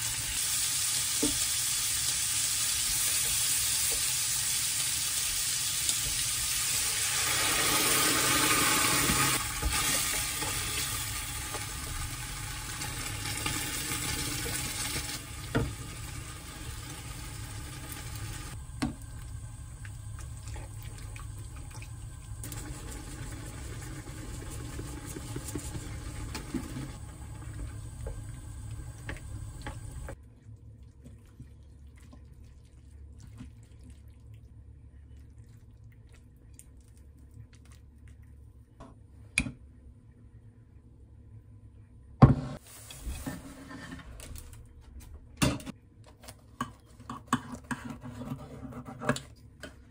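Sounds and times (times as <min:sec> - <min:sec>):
food sizzling in a hot pan: 0:00.0 - 0:18.6.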